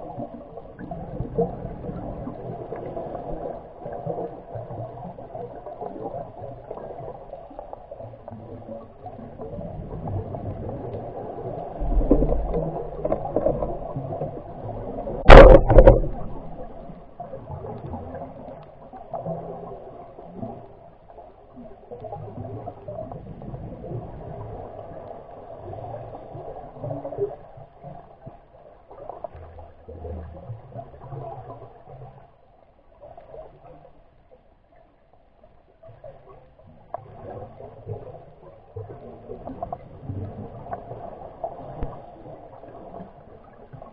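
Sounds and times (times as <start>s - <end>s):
underwater rumble and wash: 0.0s - 43.9s
loud sharp knock: 15.3s - 16.1s.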